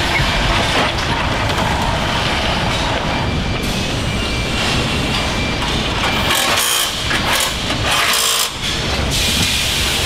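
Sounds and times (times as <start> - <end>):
assembly line machinery running: 0.0 - 10.0
pneumatic tool air hiss: 9.1 - 10.0.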